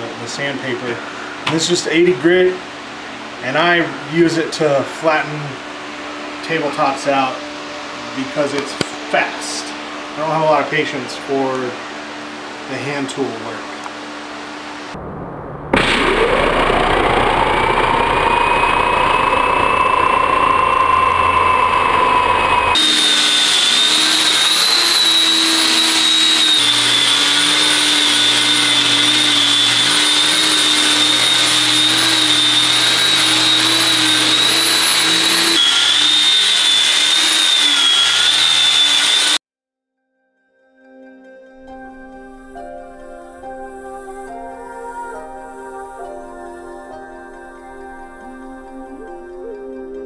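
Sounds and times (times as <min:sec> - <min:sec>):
angle grinder sanding wood: 0:16.9 - 0:39.4.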